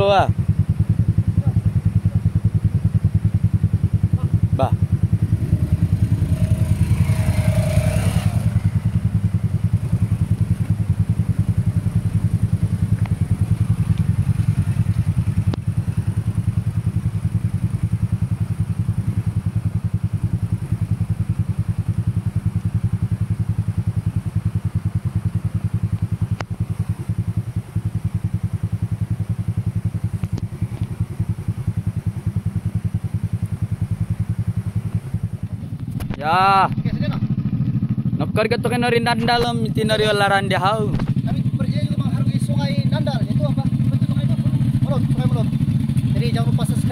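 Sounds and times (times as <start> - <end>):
motorcycle engine running: 0.0 - 46.9.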